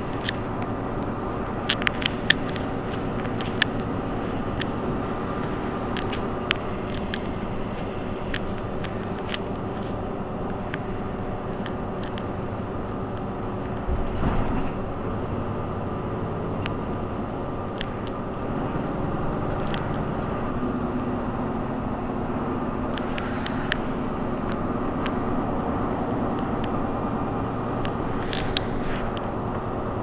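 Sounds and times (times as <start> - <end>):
bus engine idling: 0.0 - 30.0
low steady hum: 0.0 - 30.0
faint clicks: 0.1 - 12.4, 19.4 - 20.6, 22.8 - 25.2, 27.7 - 29.7.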